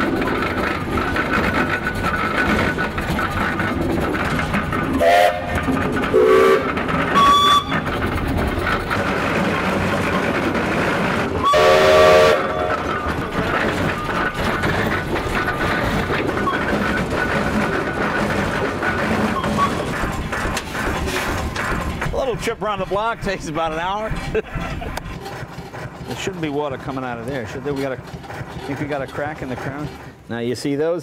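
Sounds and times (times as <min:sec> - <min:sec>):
steam engine running: 0:00.0 - 0:31.0
steam whistle toots: 0:05.0 - 0:07.8, 0:11.4 - 0:12.8.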